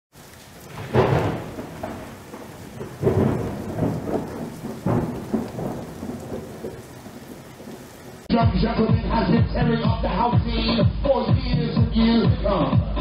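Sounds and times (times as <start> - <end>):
steady rain: 0.1 - 8.3
thunder claps: 0.2 - 8.3.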